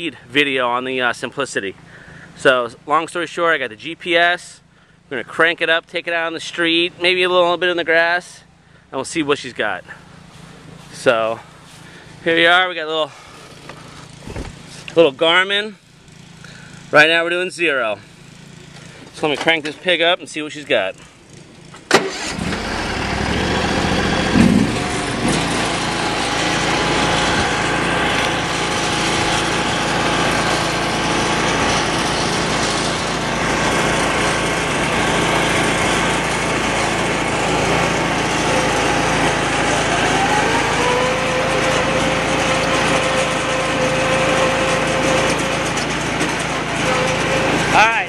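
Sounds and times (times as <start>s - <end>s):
lawn tractor engine running: 9.0s - 48.0s
rising whine: 22.3s - 33.2s, 37.3s - 48.0s.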